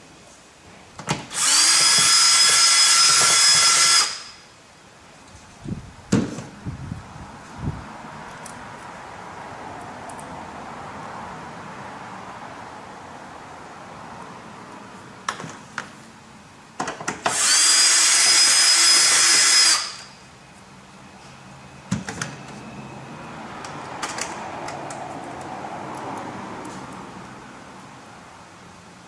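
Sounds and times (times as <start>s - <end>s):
cordless drill whining: 1.3s - 4.4s, 17.3s - 20.1s.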